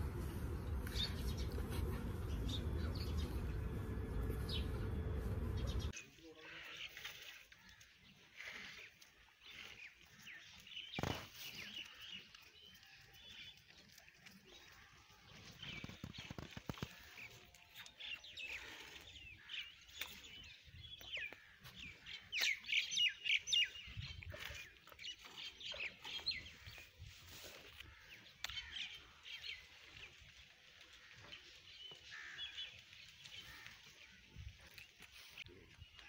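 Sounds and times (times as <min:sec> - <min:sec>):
birds chirping: 0:00.0 - 0:07.0, 0:14.4 - 0:27.1, 0:27.7 - 0:36.0.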